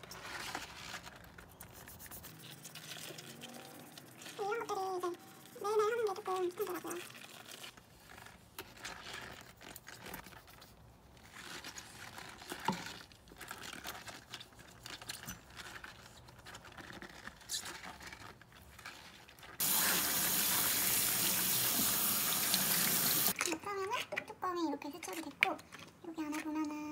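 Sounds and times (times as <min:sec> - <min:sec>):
tap water running: 0:19.6 - 0:23.4.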